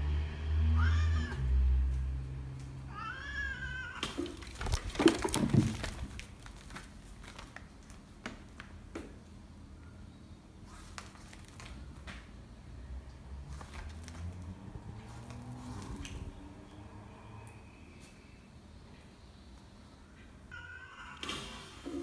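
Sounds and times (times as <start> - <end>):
cat yowls: 0.7 - 1.5, 2.9 - 4.2, 20.5 - 21.7
knocks and rustling: 4.0 - 7.6.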